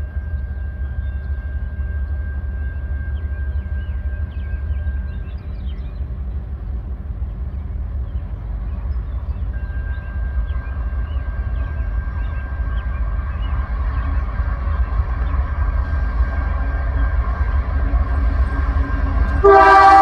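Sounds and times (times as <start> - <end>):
locomotive rumbling: 0.0 - 20.0
birds chirping: 0.1 - 20.0.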